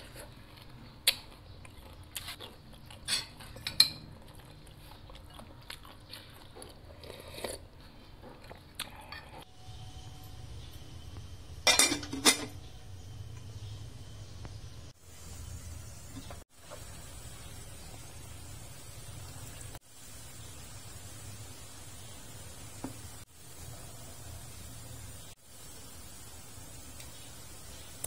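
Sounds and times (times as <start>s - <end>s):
chewing: 0.0s - 9.4s
low hum: 9.5s - 19.7s
pot lid clanking: 11.6s - 12.6s.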